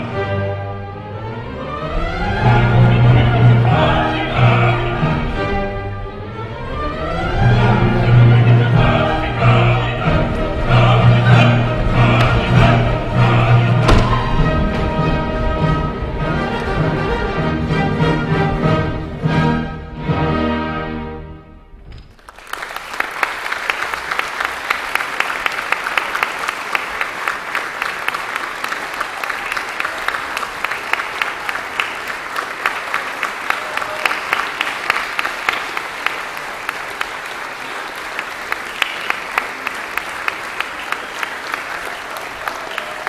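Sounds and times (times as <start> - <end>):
audience applause: 7.5 - 16.8, 22.1 - 43.0.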